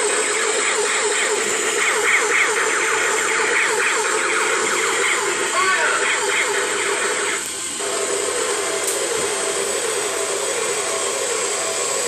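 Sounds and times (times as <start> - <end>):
toy helicopter motor whirring: 0.0 - 12.0.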